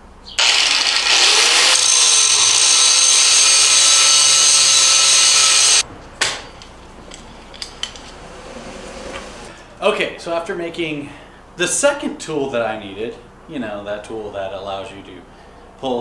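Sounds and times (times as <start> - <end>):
angle grinder grinding metal: 0.4 - 5.8.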